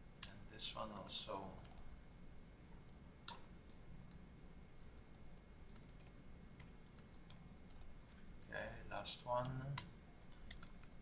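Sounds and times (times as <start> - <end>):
computer keyboard keystrokes: 0.2 - 4.2, 4.8 - 7.9, 9.4 - 11.0.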